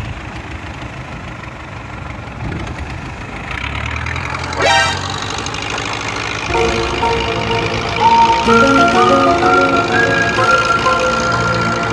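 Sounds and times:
boat engine humming: 0.0 - 11.9
short loud rising tone: 4.6 - 5.2, 6.5 - 11.9.

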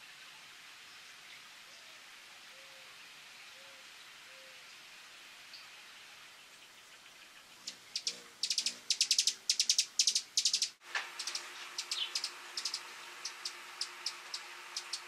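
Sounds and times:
hummingbird chips and twitters: 7.5 - 15.0.

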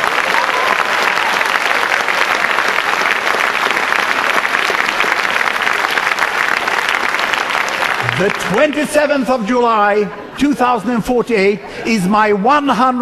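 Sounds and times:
large audience applauding: 0.0 - 9.2.

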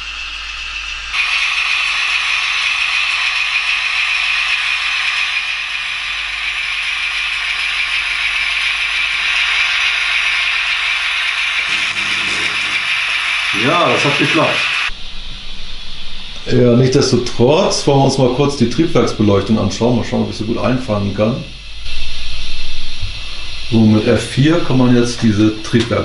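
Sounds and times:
model train whirring rattle: 0.2 - 15.0.

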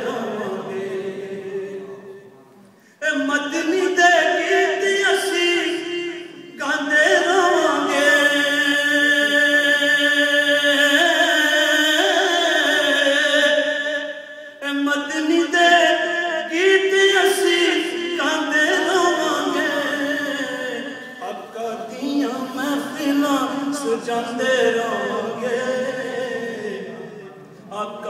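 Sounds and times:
man chanting melodically: 3.0 - 28.0.

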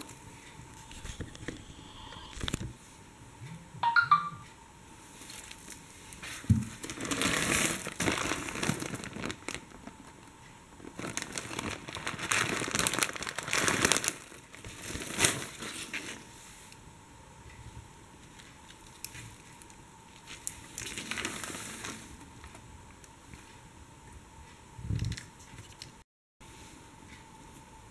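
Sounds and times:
plastic bag crinkling: 6.7 - 16.2, 20.2 - 22.6.

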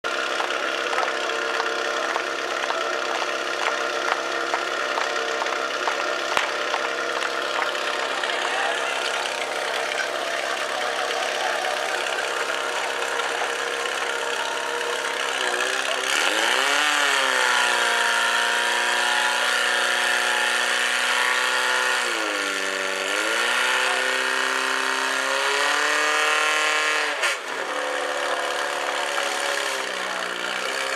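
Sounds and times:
fire pump engine revving: 0.0 - 30.9.

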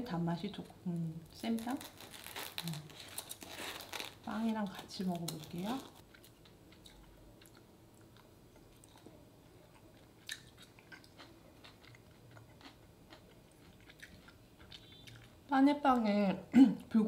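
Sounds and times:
faint chewing mouth clicks: 9.8 - 15.3.

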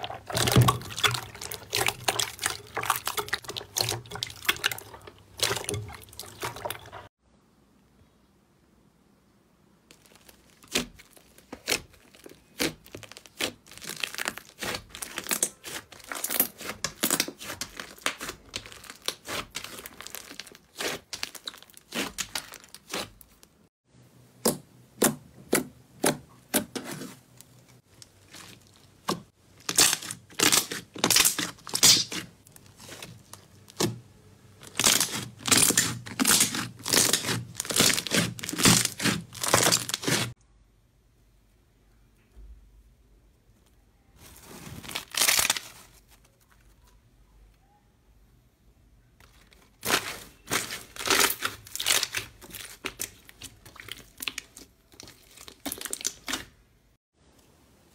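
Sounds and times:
slime squished by hands: 0.0 - 7.1, 9.9 - 23.6, 27.8 - 34.0, 34.6 - 40.4, 49.2 - 56.6.

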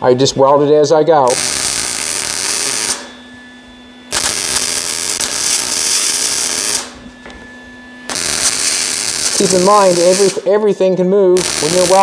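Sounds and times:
faint steady hum: 0.0 - 12.0
welder arc crackling and hissing: 1.2 - 3.2, 4.1 - 7.1, 8.0 - 12.0.

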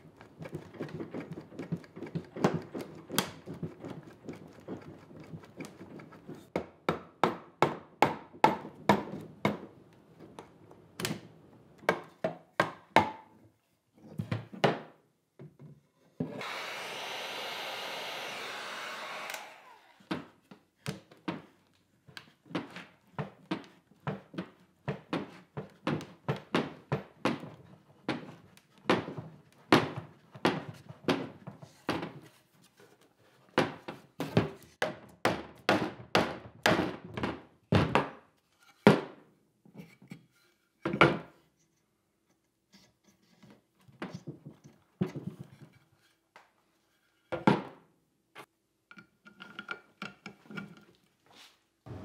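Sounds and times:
wooden knocks and clatter: 0.0 - 6.8, 43.8 - 46.1.

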